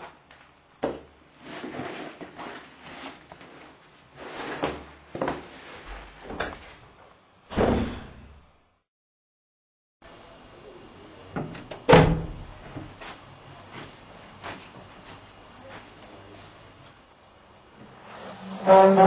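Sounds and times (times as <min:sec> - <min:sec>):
door slamming shut: 0:07.5 - 0:08.4, 0:11.8 - 0:12.6.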